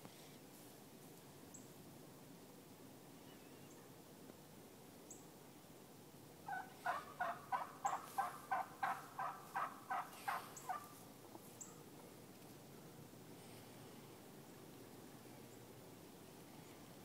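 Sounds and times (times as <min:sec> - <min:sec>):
turkey hen yelping: 0:06.5 - 0:11.0.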